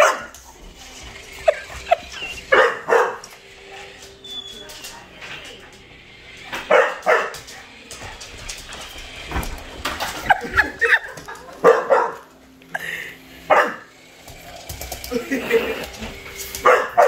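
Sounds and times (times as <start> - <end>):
dog barking loudly: 0.0 - 0.3, 2.4 - 3.2, 6.7 - 7.4, 11.6 - 12.3, 13.5 - 13.9, 16.6 - 17.0.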